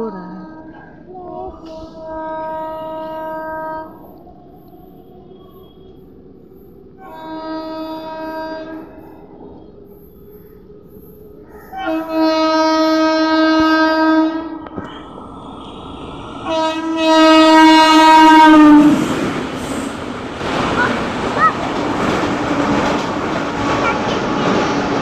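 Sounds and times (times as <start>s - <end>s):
train rolling past: 0.0s - 25.0s
locomotive air horn blasts: 1.7s - 4.1s, 7.0s - 8.9s, 11.8s - 14.6s, 16.4s - 19.1s.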